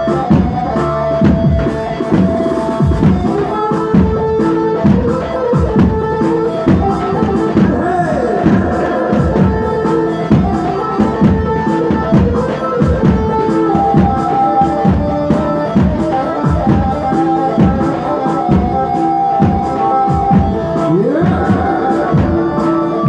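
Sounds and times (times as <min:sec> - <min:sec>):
electronic keyboard dance music: 0:00.0 - 0:23.0.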